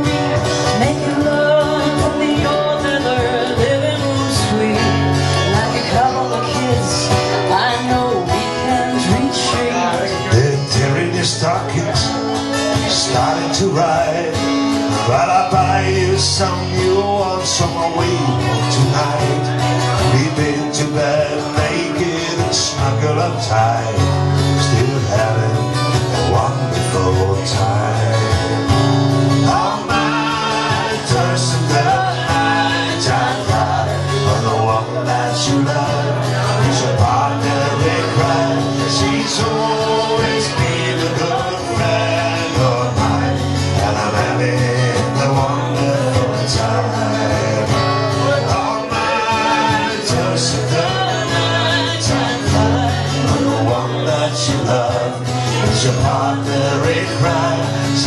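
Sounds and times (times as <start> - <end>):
acoustic guitars strummed: 0.0 - 58.0
woman singing: 0.6 - 10.3, 48.8 - 57.5.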